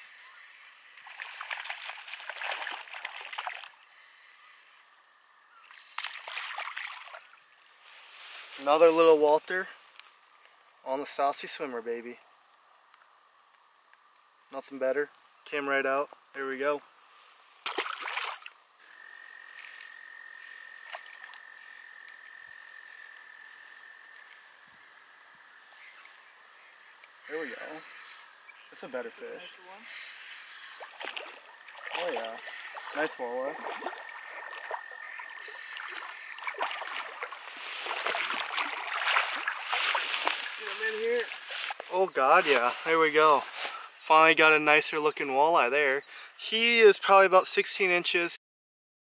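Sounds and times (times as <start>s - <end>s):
fish splashing and thrashing: 0.9s - 3.8s, 5.8s - 7.6s, 17.6s - 18.6s, 30.5s - 41.8s
frog trilling: 18.8s - 41.4s.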